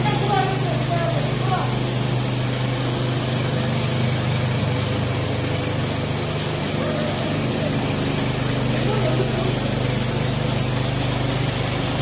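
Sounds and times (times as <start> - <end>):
rotating brush sweeping floor: 0.0 - 12.0
small engine humming: 0.0 - 12.0.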